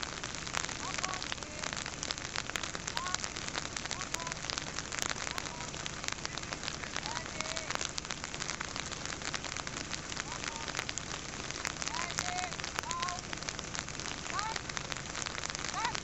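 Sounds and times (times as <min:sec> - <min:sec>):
rain patter: 0:00.0 - 0:16.0.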